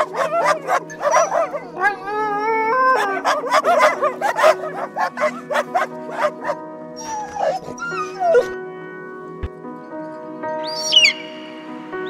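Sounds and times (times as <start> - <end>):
puppies barking and yipping: 0.0 - 8.5
background music with held notes: 0.0 - 12.0
puppy whines: 6.2 - 8.6.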